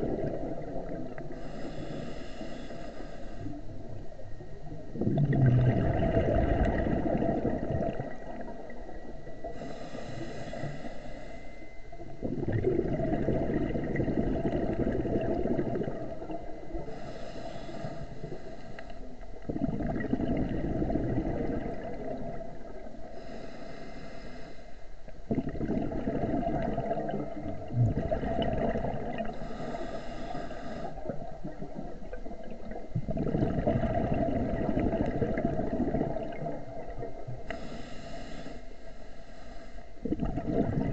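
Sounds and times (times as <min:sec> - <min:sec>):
exhaled bubbles gurgling: 0:00.0 - 0:11.2, 0:11.9 - 0:24.4, 0:25.1 - 0:38.5, 0:40.0 - 0:40.9
regulator inhalation hiss: 0:01.3 - 0:03.6, 0:09.5 - 0:11.6, 0:16.9 - 0:19.1, 0:23.2 - 0:24.9, 0:29.3 - 0:31.1, 0:37.5 - 0:40.0.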